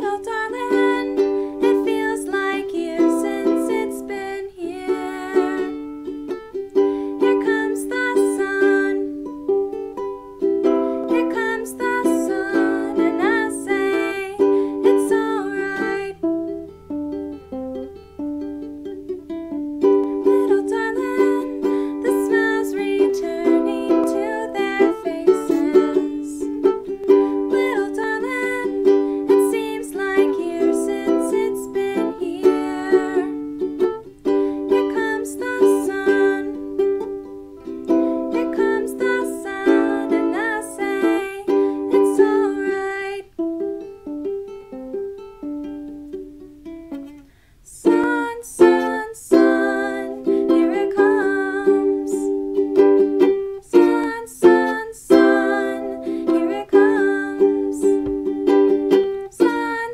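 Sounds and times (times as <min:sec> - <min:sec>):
plucked string instrument tune: 0:00.0 - 0:59.9.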